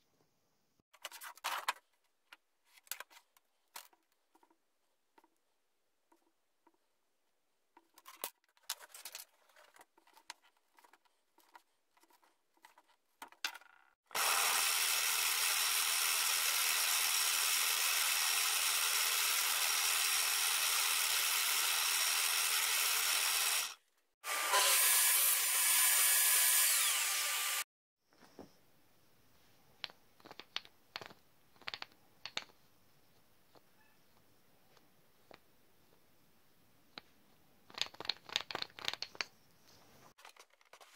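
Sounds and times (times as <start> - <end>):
drill press boring wood: 14.1 - 27.6.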